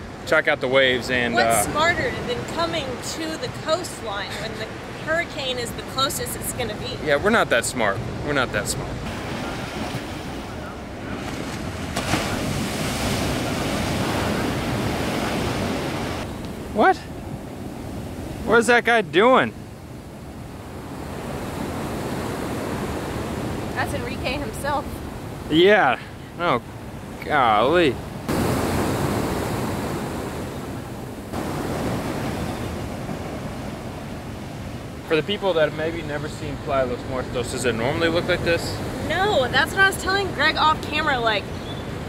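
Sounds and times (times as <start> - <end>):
surf breaking on beach: 0.9 - 5.2, 8.0 - 16.9, 28.2 - 41.0
wind on microphone: 8.0 - 18.5.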